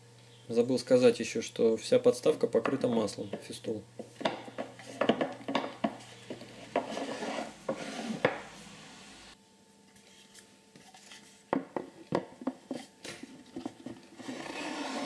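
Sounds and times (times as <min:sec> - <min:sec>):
wooden drawer scraping: 0:06.4 - 0:08.4, 0:14.2 - 0:15.0.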